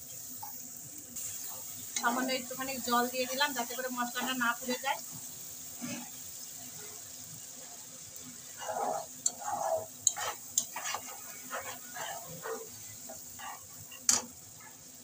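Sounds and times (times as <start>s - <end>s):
masala sizzling in a pan: 0.0s - 15.0s
spatula scraping and stirring: 5.8s - 15.0s
spatula tapping pan: 9.2s - 14.4s.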